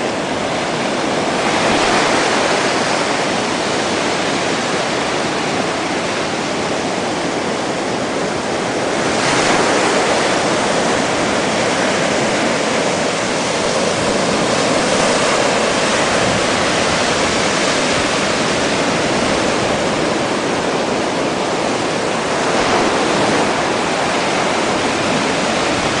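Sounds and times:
small waves washing on sandy beach: 0:00.0 - 0:26.0.

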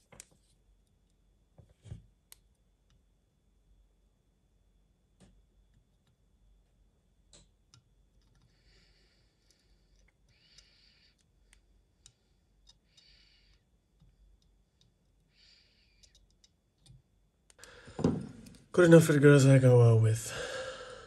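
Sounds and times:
faint small clicks: 0:09.4 - 0:17.8.

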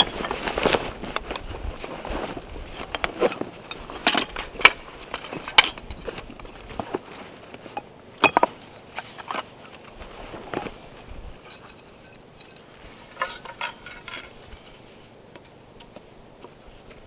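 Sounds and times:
rustle of handling: 0:00.0 - 0:17.0
ringing clink: 0:08.2 - 0:08.7.

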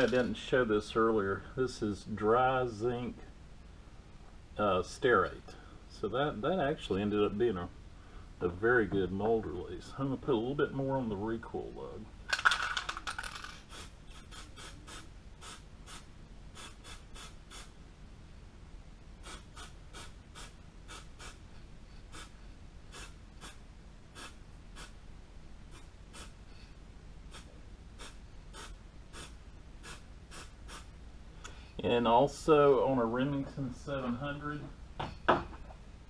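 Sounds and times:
spray can hissing puffs: 0:13.7 - 0:17.7, 0:19.2 - 0:21.4, 0:22.9 - 0:23.6, 0:24.2 - 0:24.9, 0:27.3 - 0:30.9.

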